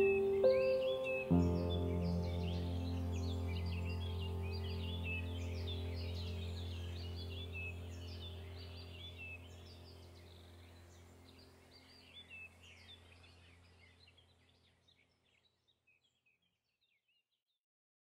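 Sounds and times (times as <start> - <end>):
small birds chirping: 0.0 - 17.4
low steady drone: 1.3 - 13.4.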